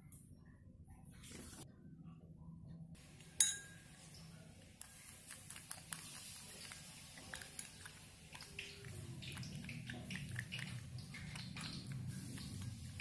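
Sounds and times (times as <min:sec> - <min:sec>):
spoon stirring slime in a bowl: 0:03.2 - 0:13.0
spoon clinking on glass: 0:03.4 - 0:03.9.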